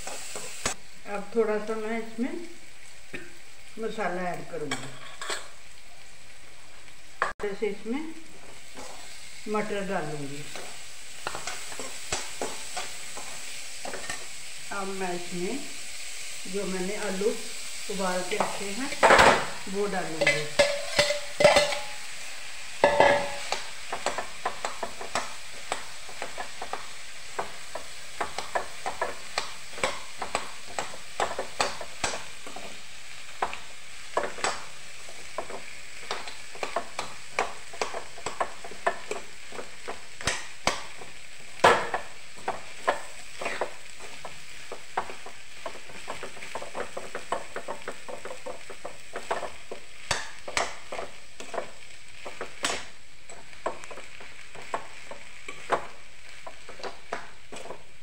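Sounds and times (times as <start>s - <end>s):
frying sizzle: 0.0s - 58.0s
metal spatula scraping a pan: 4.7s - 5.6s, 8.4s - 9.3s, 20.2s - 22.2s, 22.8s - 33.5s, 41.6s - 51.7s.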